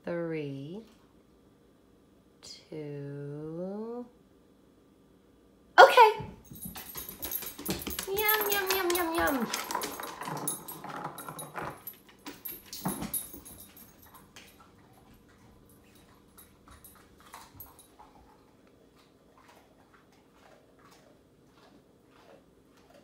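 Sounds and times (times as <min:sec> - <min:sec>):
dog nails clicking on hardwood floor: 0:06.4 - 0:18.0
dog chewing a treat: 0:06.6 - 0:13.1, 0:13.8 - 0:23.0.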